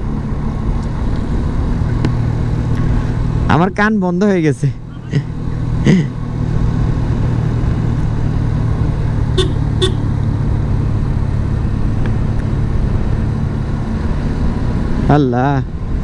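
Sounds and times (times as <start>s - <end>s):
motorcycle engine running: 0.0s - 14.8s
horn toots: 9.3s - 10.1s.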